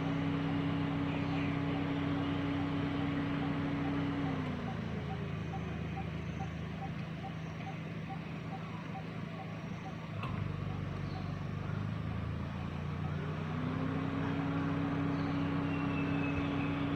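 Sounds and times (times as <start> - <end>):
higher engine tone: 0.0 - 16.9
low engine hum: 0.0 - 16.9.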